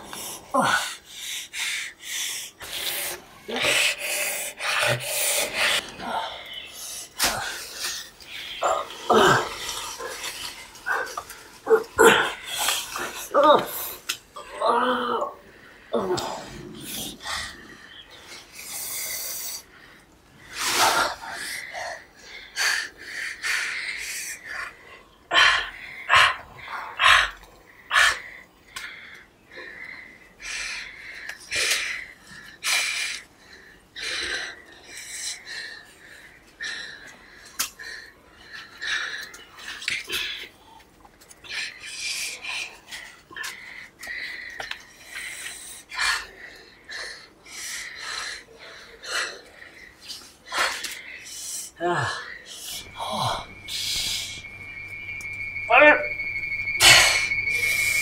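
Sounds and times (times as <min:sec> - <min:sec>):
man breathing heavily: 0:00.0 - 0:14.1, 0:41.5 - 0:56.0.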